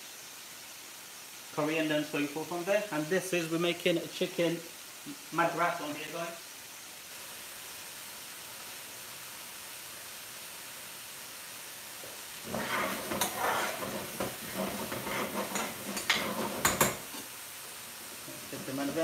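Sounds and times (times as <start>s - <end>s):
food sizzling in a frying pan: 0.0s - 19.0s
ladle scraping a pan: 12.4s - 17.3s.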